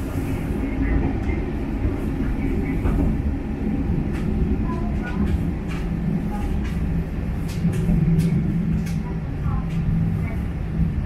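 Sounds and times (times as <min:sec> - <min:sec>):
railcar engine drone: 0:00.0 - 0:11.0
wheel-on-rail rumble: 0:00.0 - 0:11.0
faint clicks: 0:05.0 - 0:09.9.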